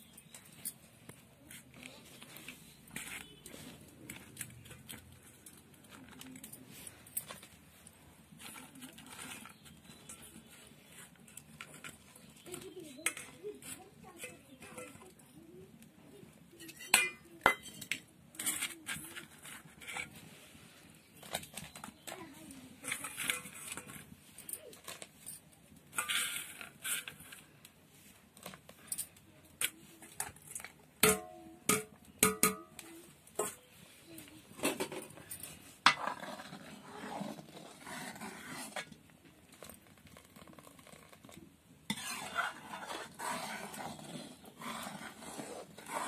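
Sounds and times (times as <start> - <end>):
utensil scraping metal pan: 8.4 - 15.2, 16.6 - 20.3, 22.8 - 24.2, 25.9 - 27.5, 29.6 - 32.8, 35.8 - 39.1, 40.4 - 46.0.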